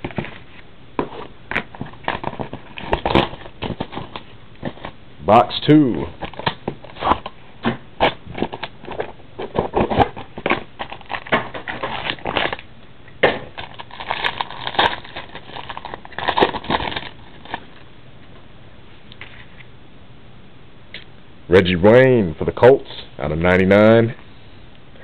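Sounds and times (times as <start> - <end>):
cardboard packaging crinkling: 0.0 - 5.0, 8.0 - 12.7, 13.4 - 17.8.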